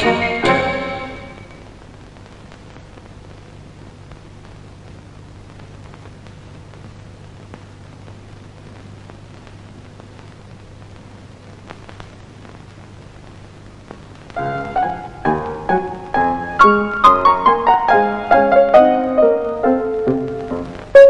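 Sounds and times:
film soundtrack hiss: 0.0 - 21.0
faint clicks: 4.1 - 14.4.

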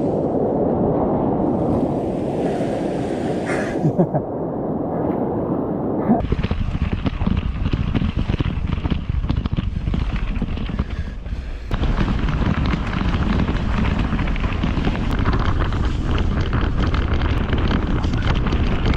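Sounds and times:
wind rushing over microphone: 0.0 - 18.9
bicycle rolling over gravel: 6.2 - 18.9.

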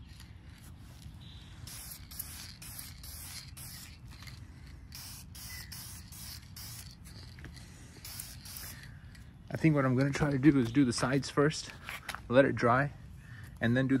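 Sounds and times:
aerosol spray can hissing: 1.6 - 7.2, 8.0 - 8.8.

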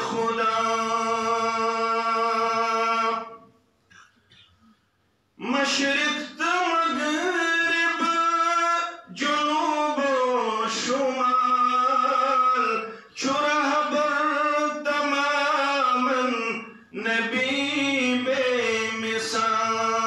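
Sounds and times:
man chanting melodically: 0.0 - 3.5, 5.4 - 20.0.

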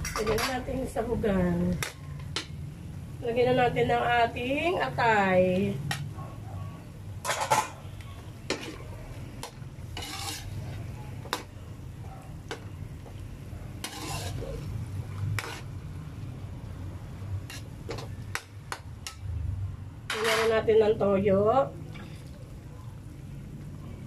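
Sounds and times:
spoon scraping metal pan: 8.5 - 11.5, 13.8 - 15.8, 17.4 - 19.3
pan sizzling lightly: 12.4 - 15.9.

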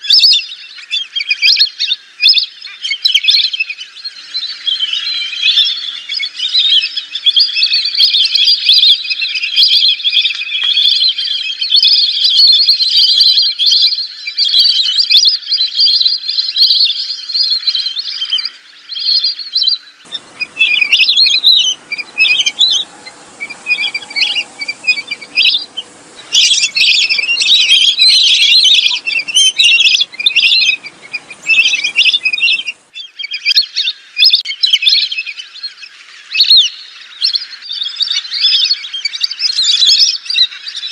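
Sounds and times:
hiss: 20.1 - 32.8
ducks whistling calls: 20.1 - 33.0.

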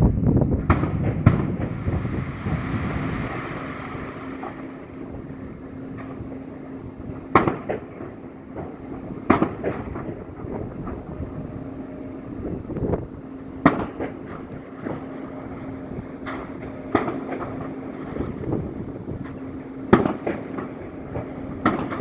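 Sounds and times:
faint steady hum: 0.0 - 22.0
fireworks bangs: 0.6 - 5.2, 7.1 - 11.3, 13.6 - 22.0
hissing crackle of fireworks: 0.6 - 22.0.

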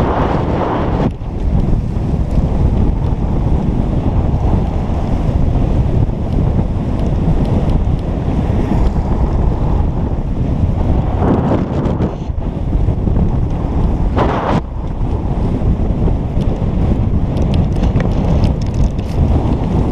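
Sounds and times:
wind buffeting microphone: 0.0 - 19.9.

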